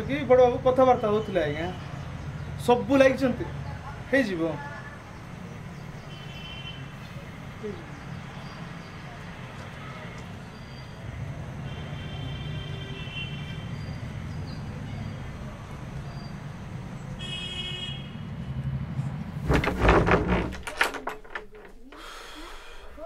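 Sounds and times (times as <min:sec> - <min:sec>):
knocks and rattles: 0:19.4 - 0:22.0
wooden door pushed open: 0:19.4 - 0:22.0.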